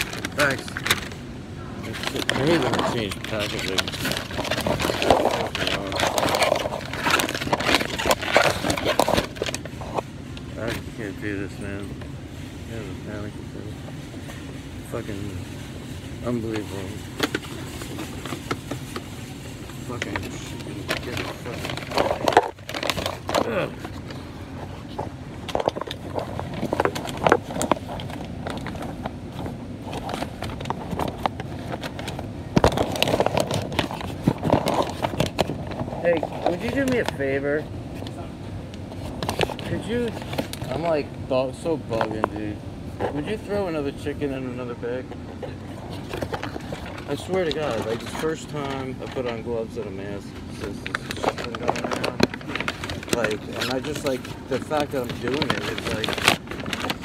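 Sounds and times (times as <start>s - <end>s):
plastic containers clicking and rustling: 0.0s - 1.2s, 1.8s - 12.1s, 16.1s - 38.1s, 38.8s - 57.0s
plastic packaging crinkling: 0.0s - 1.2s, 1.8s - 9.8s, 14.9s - 37.3s, 45.4s - 57.0s
low store hum: 0.0s - 57.0s.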